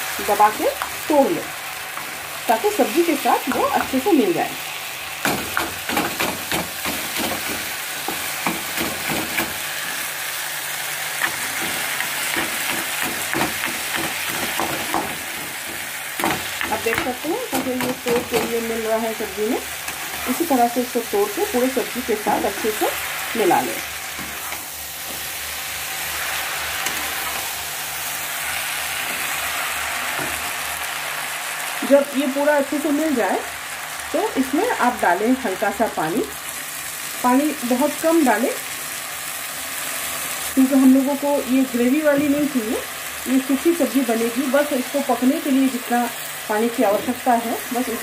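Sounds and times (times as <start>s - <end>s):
food sizzling in oil in a wok: 0.0s - 48.0s
spatula scraping and knocking pan: 5.2s - 10.0s, 11.2s - 18.8s, 23.4s - 25.4s.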